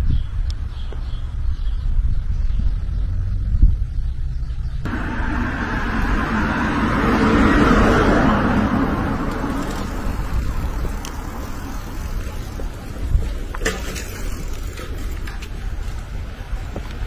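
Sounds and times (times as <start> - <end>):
steady low rumble: 0.0 - 17.0
vehicle passing rushing noise: 4.3 - 15.2.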